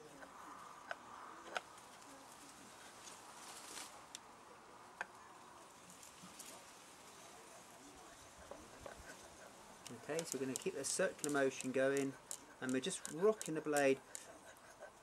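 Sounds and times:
sharp ticks: 9.8s - 14.4s.

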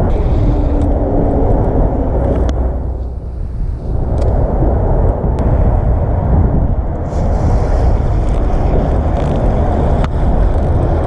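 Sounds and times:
boat motor rumble: 0.0s - 11.0s
wind buffeting microphone: 0.0s - 11.0s.

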